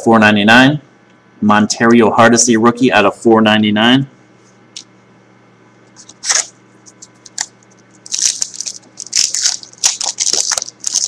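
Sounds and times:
foil wrapper crinkling: 6.0 - 11.0.

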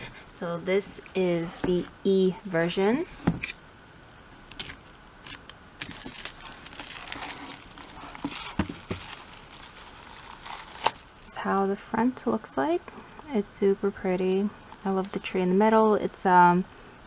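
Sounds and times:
plastic shrink wrap crinkling: 4.4 - 11.4.

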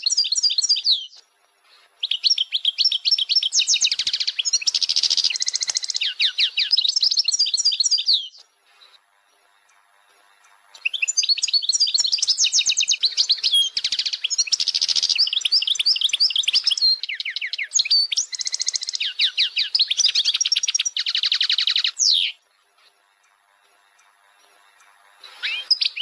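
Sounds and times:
songbird singing: 0.0 - 26.0.

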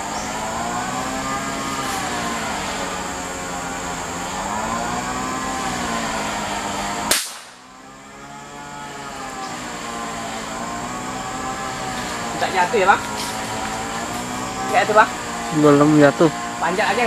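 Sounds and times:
droning hum: 0.0 - 17.0
rifle shot: 7.1 - 7.6.

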